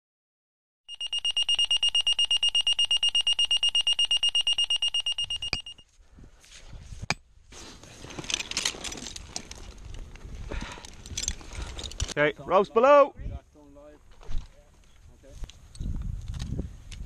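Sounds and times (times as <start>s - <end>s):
rapid electronic alarm beeps: 0.9s - 5.8s
rustling: 6.4s - 12.2s.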